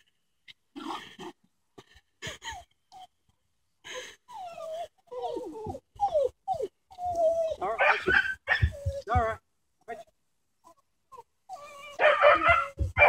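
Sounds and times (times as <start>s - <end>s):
dog whining and yipping: 4.3s - 9.3s, 10.7s - 13.0s.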